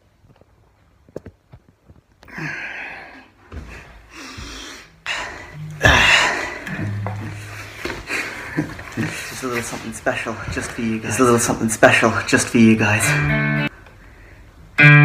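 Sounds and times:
low steady tone: 5.5s - 7.8s.

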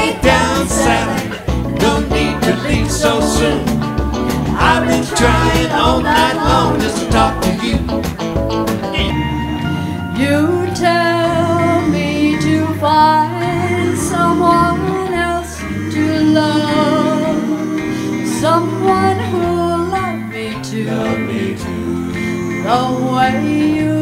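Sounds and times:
live band accompaniment: 0.0s - 20.4s
woman singing slow song: 10.1s - 24.0s.

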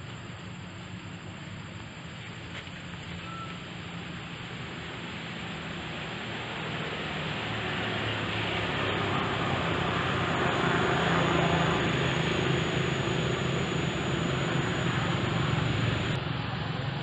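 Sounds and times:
faint high-pitched whine: 0.0s - 7.0s, 7.6s - 17.0s
even hiss: 0.0s - 16.9s
low hum: 8.3s - 16.9s.

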